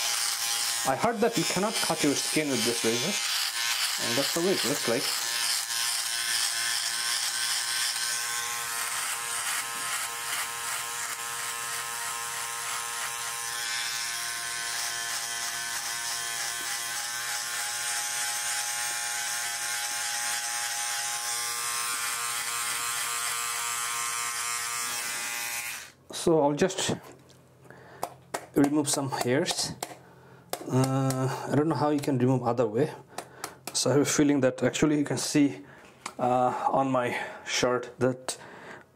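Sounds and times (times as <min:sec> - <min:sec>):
electric shaver buzzing: 0:00.0 - 0:26.0.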